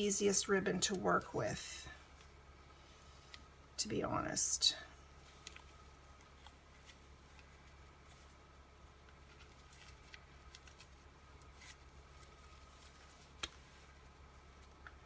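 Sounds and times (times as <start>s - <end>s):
low steady hum: 0.0s - 15.0s
ribbon and cardstock rustling: 5.2s - 15.0s.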